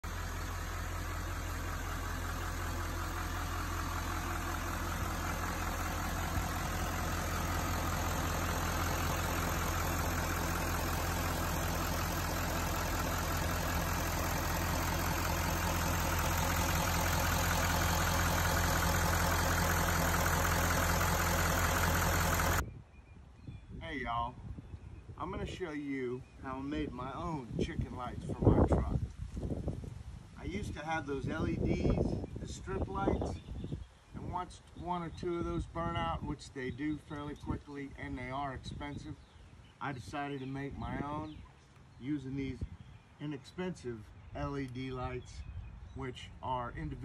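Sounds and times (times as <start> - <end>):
diesel engine idling: 0.0 - 22.6.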